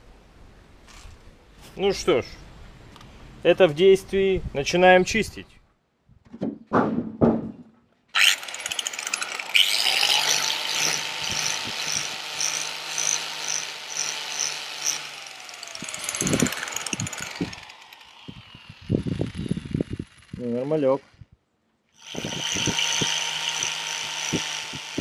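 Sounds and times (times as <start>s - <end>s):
short knocks: 6.2s - 7.8s
angle grinder polishing metal: 8.2s - 20.4s, 22.0s - 25.0s.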